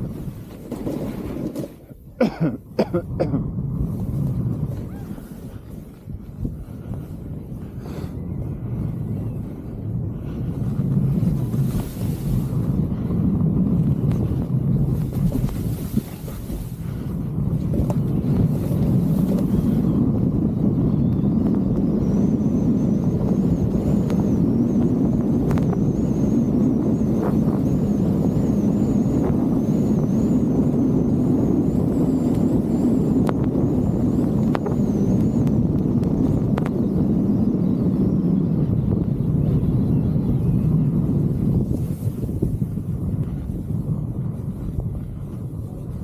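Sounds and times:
wind buffeting microphone: 0:00.0 - 0:46.0
hiss of sliding over snow: 0:03.8 - 0:08.2, 0:10.4 - 0:13.2, 0:14.1 - 0:19.9, 0:41.5 - 0:42.8.

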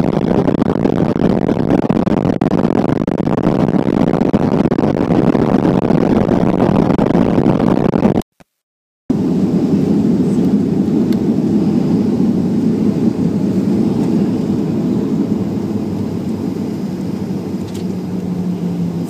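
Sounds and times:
airliner cabin low rumble: 0:09.1 - 0:19.0.

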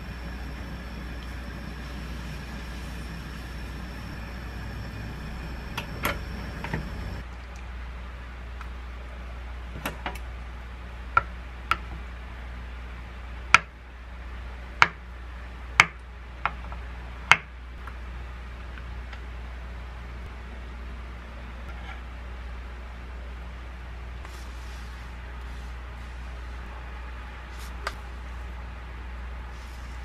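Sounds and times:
gas stove hissing: 0:00.0 - 0:07.2, 0:24.2 - 0:26.8, 0:29.4 - 0:30.0.

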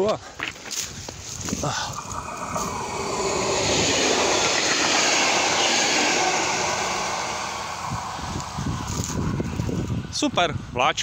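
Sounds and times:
train passing: 0:01.8 - 0:10.6.

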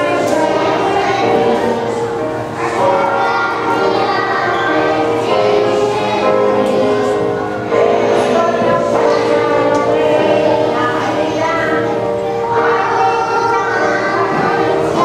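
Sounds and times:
children singing: 0:00.0 - 0:15.0
music: 0:00.0 - 0:15.0.

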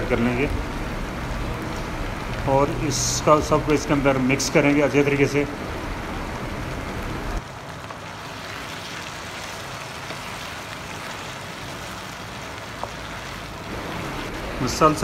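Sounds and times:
food sizzling in a pan: 0:07.6 - 0:15.0.

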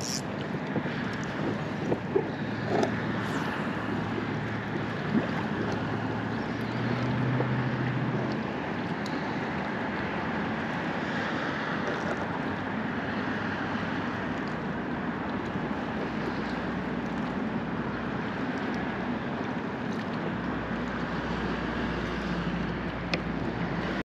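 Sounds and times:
boat motor hum: 0:00.0 - 0:24.0
wind buffeting microphone: 0:00.2 - 0:08.8.

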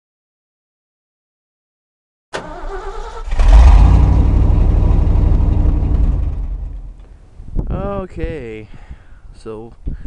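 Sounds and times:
truck engine exhaust: 0:02.4 - 0:07.3.

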